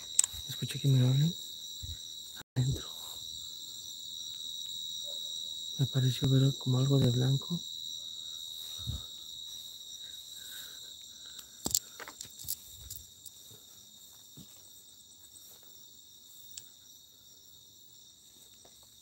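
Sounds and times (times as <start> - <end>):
crickets chirping: 0.0 - 19.0.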